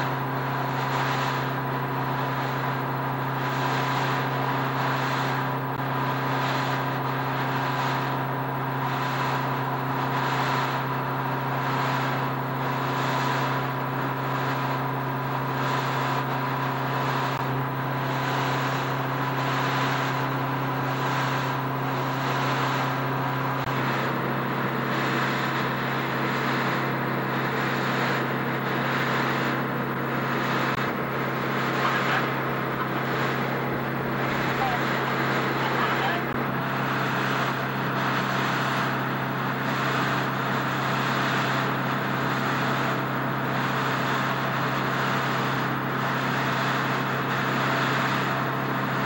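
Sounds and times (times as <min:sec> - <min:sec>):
low machinery hum: 0:00.0 - 0:49.0
steady machinery whine: 0:00.0 - 0:49.0
pulsing hiss: 0:21.0 - 0:48.2.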